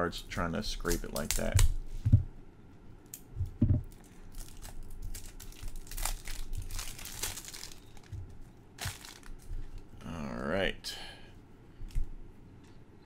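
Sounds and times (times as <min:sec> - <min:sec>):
card wrapping crinkling and tearing: 0:04.0 - 0:08.2, 0:08.8 - 0:09.5.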